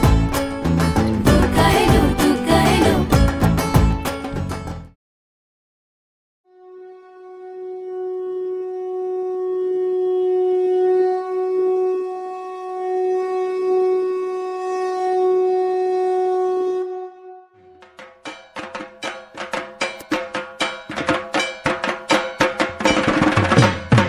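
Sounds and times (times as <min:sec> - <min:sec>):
conch shell blown: 0:06.5 - 0:18.0.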